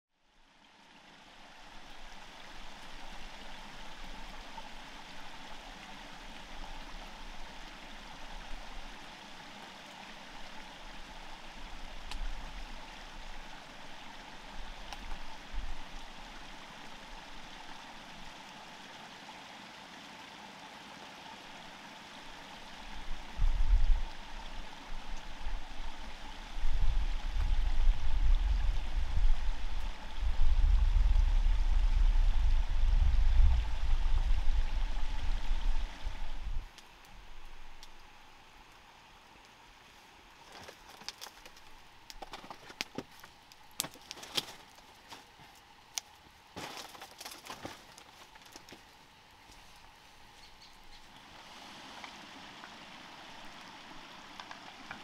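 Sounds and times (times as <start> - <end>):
stream flowing: 0.2 - 55.0.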